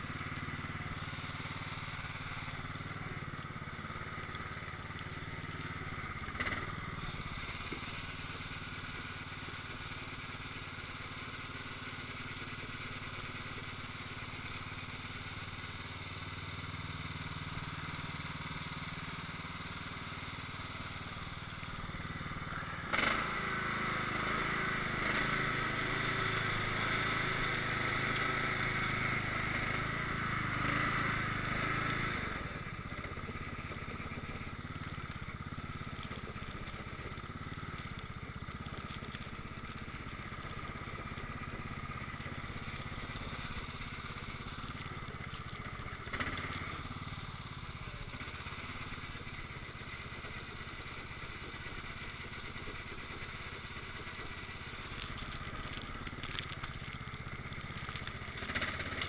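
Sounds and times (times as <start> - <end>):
lawn tractor engine running: 0.0 - 59.0.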